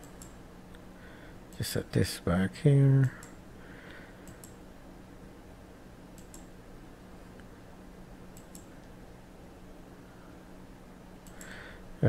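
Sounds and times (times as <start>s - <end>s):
computer mouse clicks: 0.0s - 0.4s, 3.0s - 3.4s, 4.2s - 4.6s, 6.2s - 6.5s, 8.4s - 9.0s, 11.2s - 11.6s
low steady hum: 0.0s - 12.0s.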